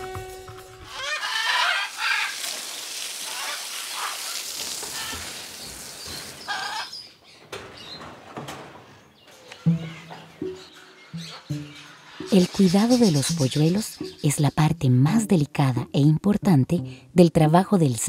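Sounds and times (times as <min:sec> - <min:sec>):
macaws squawking: 0:00.9 - 0:05.6, 0:06.2 - 0:07.1, 0:09.6 - 0:15.2
hose spraying water on concrete: 0:00.9 - 0:06.9
sharp knocks: 0:09.6 - 0:12.6.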